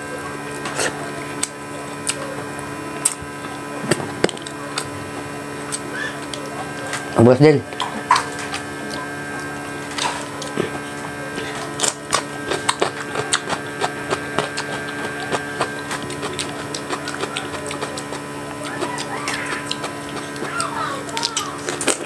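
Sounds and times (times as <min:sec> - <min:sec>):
electrical hum: 0:00.0 - 0:22.0
mouth chewing: 0:00.5 - 0:03.6, 0:07.7 - 0:22.0.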